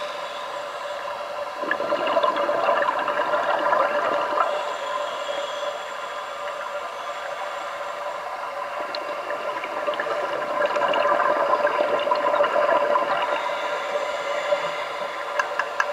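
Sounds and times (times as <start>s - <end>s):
steady hum: 0.0s - 15.9s
diver's exhaled bubbles: 1.6s - 4.5s.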